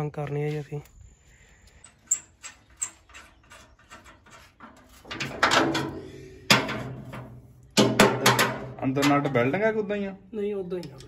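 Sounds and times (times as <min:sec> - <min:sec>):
metallic knocks on steel drum: 0:07.8 - 0:09.3.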